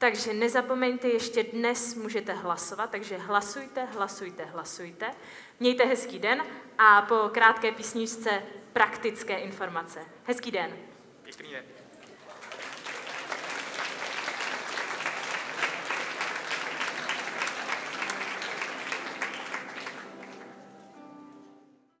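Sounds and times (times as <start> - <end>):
audience applauding: 12.0 - 21.4
held musical notes: 15.6 - 22.0.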